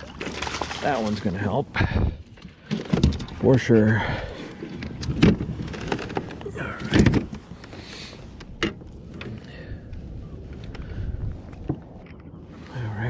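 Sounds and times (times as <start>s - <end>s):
knocks and thumps on a boat: 1.8s - 3.4s, 4.7s - 7.7s.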